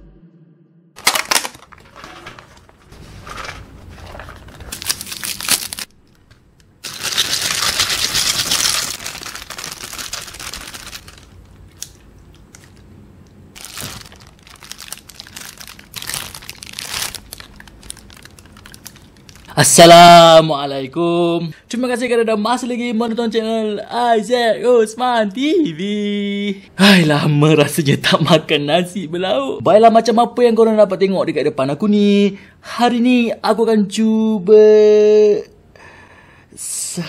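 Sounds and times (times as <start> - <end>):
plastic bags crinkling: 1.0 - 12.8, 13.6 - 19.6.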